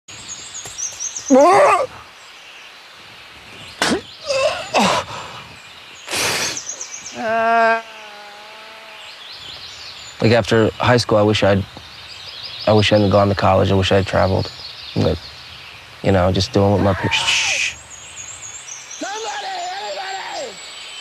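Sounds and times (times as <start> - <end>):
faint birds chirping: 0.1 - 21.0
man groaning in pain: 1.3 - 2.0, 4.2 - 5.3.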